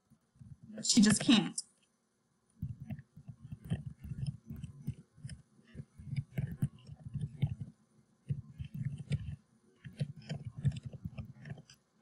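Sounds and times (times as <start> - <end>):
typing on computer keyboard: 2.7 - 7.7, 8.3 - 11.8.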